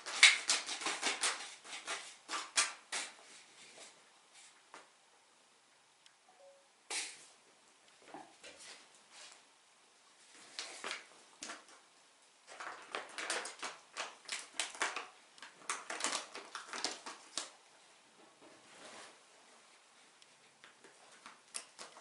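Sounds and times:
foil pouches crinkling: 12.4s - 17.6s.

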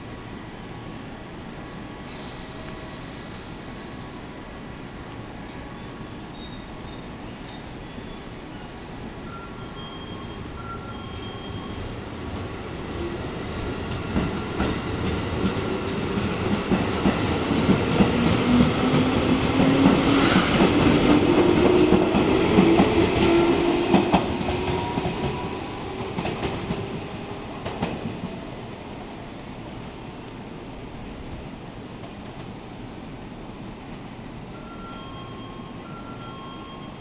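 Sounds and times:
electric train whine: 6.3s - 27.8s.

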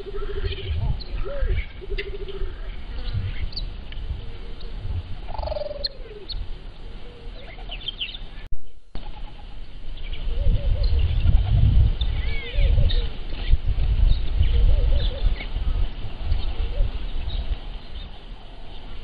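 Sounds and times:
low rumbling noise: 0.0s - 7.6s
birds chirping and calling: 0.0s - 19.0s.

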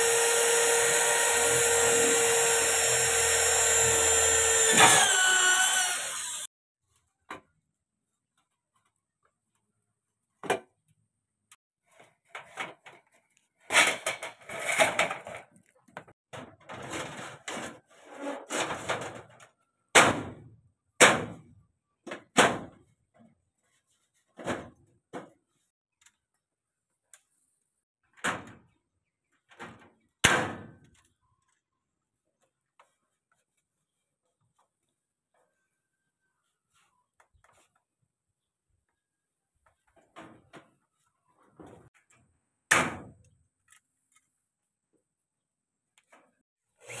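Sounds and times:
panels scraping and rustling: 11.9s - 15.8s, 16.4s - 19.4s.

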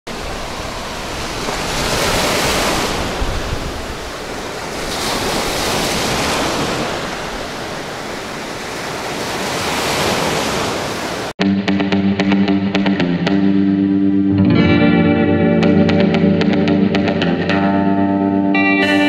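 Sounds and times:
wind buffeting microphone: 0.1s - 10.9s
sea surf washing ashore: 0.1s - 11.4s.

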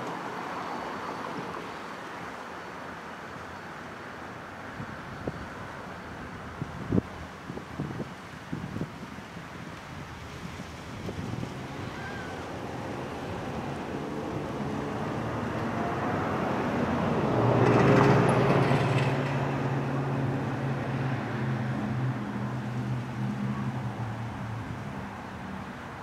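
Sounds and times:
rushing vehicle noise: 0.0s - 26.0s
locomotive engine drone: 10.3s - 26.0s.

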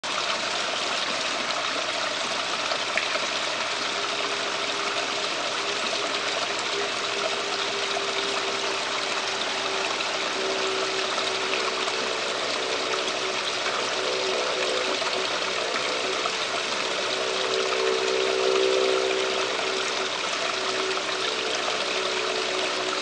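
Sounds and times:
water feature trickling: 0.0s - 23.0s.

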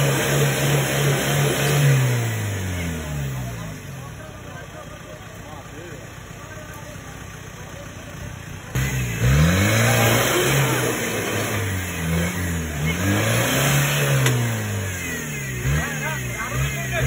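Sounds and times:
vehicle engine revving: 0.0s - 4.3s, 8.4s - 17.0s.

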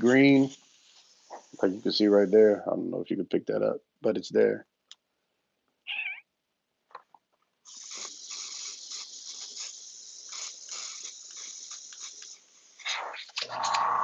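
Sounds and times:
airbrush spraying hiss: 0.0s - 2.6s, 7.6s - 13.2s.

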